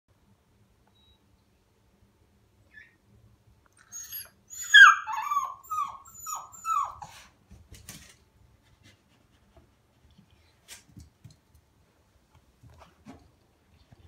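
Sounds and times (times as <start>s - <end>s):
puppy howling: 4.0s - 7.1s.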